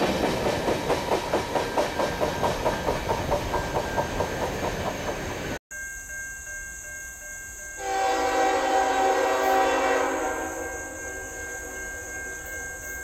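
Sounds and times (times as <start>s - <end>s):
train wheels clicking over rail joints: 0.0s - 5.6s
locomotive horn blast: 7.8s - 11.0s.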